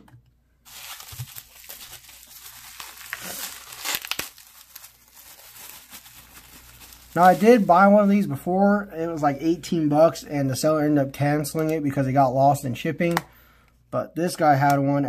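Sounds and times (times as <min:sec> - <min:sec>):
bubble wrap crackles: 0:00.6 - 0:08.3
bubble wrap crinkling: 0:00.6 - 0:08.4.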